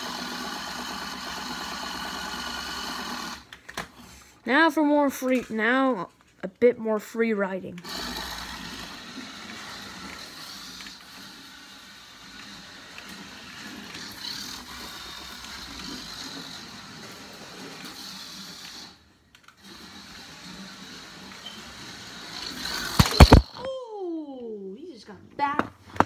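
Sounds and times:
toy car electric motor whirring: 0.0s - 4.0s, 7.8s - 23.6s.

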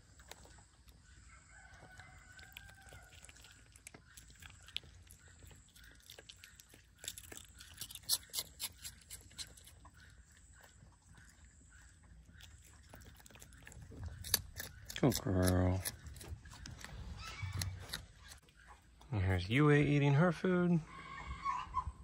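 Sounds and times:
rooster crowing: 1.3s - 3.2s
sharp clicks and crunches: 2.4s - 10.0s, 12.4s - 18.5s.

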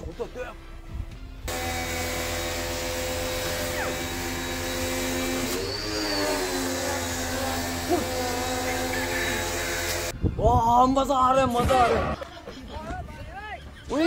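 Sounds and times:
pressure washer spraying: 1.5s - 10.1s.

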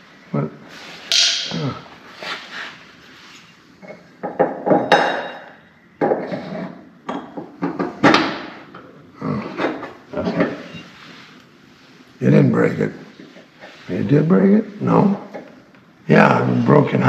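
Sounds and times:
hammer striking metal pin: 1.1s - 1.6s.

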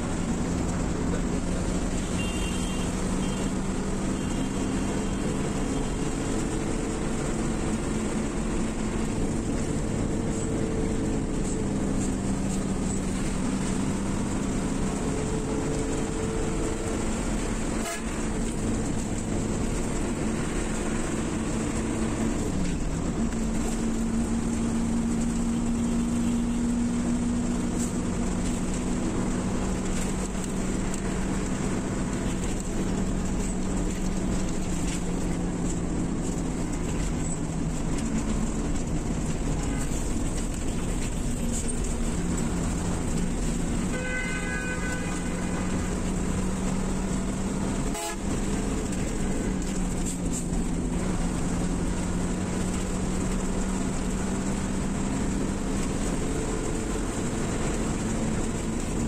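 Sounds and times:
bus engine drone and road noise: 0.0s - 59.0s
vehicle horn: 2.0s - 3.5s, 17.8s - 18.3s, 39.5s - 40.0s, 43.9s - 45.9s, 47.8s - 48.5s.

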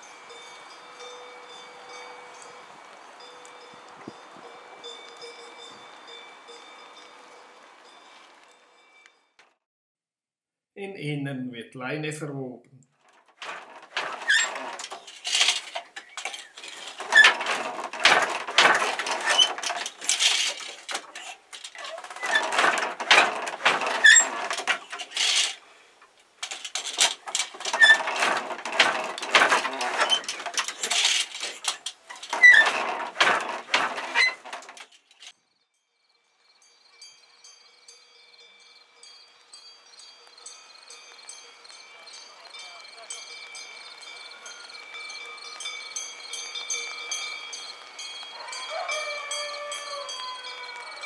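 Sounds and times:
handloom clattering and knocking: 13.0s - 35.3s.

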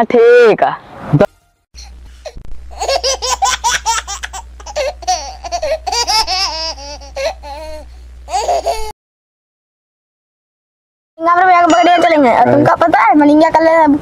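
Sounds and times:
sped-up comic laughter: 2.7s - 8.9s.

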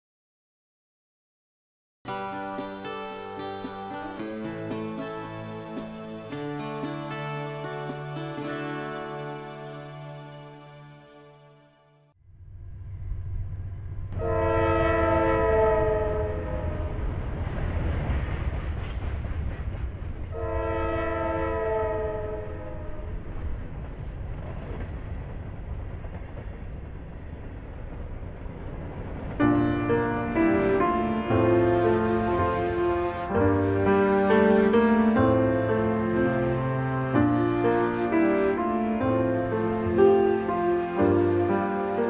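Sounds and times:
music with plucked notes: 2.1s - 11.6s, 29.5s - 42.0s
train rumbling: 12.3s - 42.0s
train horn blasts: 14.1s - 17.2s, 20.3s - 23.3s, 29.4s - 42.0s.

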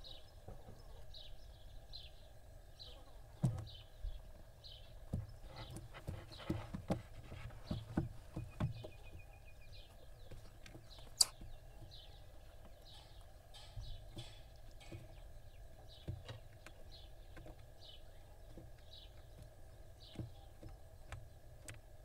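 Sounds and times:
knocks and scuffles on wood: 5.1s - 9.3s
sharp click: 11.2s - 11.4s.

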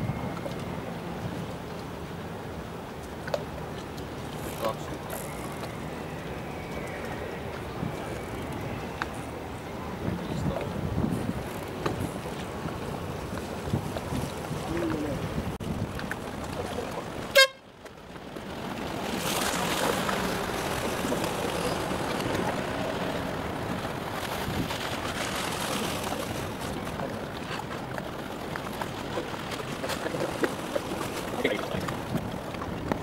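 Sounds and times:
water noise: 0.0s - 33.0s
wind on microphone: 5.0s - 17.3s, 18.3s - 33.0s
horn blast: 17.3s - 17.6s.

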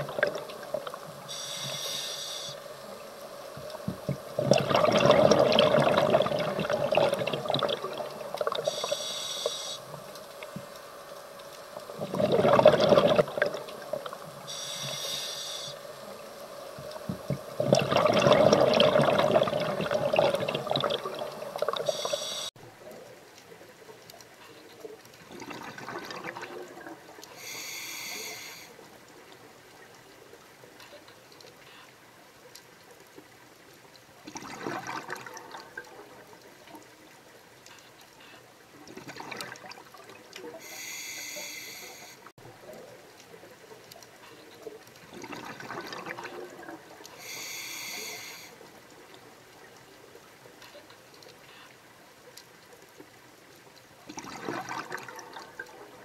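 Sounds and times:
exhaled bubbles rushing underwater: 0.0s - 1.1s, 3.6s - 9.0s, 11.8s - 14.4s, 16.2s - 22.5s, 25.2s - 27.2s, 34.3s - 36.2s, 38.9s - 40.4s, 45.0s - 47.1s, 54.1s - 56.0s
hissing regulator inhalations: 1.3s - 3.0s, 8.5s - 9.9s, 14.4s - 16.0s, 21.8s - 22.6s, 27.4s - 28.8s, 40.6s - 42.3s, 47.2s - 48.6s.

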